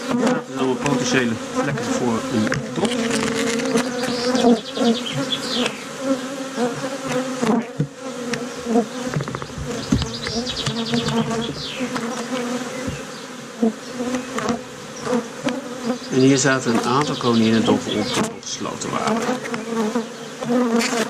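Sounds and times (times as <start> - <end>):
honey bees buzzing: 0.0 - 21.0
wooden frames clicking and knocking: 9.1 - 12.1.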